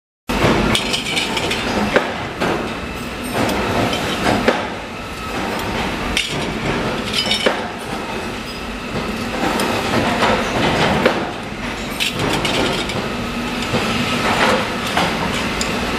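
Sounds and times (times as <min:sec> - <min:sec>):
workshop machine noise: 0:00.3 - 0:15.9
metal parts clinking and knocking: 0:00.7 - 0:01.8, 0:05.3 - 0:07.9, 0:11.8 - 0:15.8.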